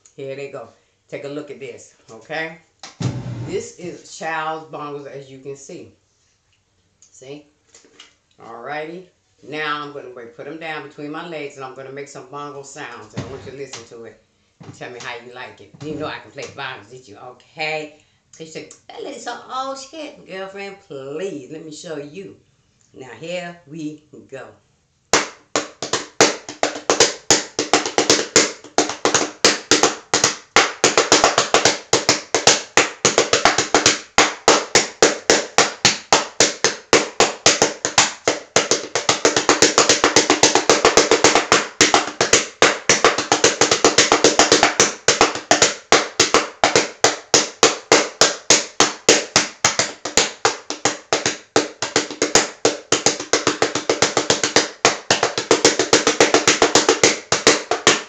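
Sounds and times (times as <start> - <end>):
toy bongo drums struck by hand: 25.1 - 58.0.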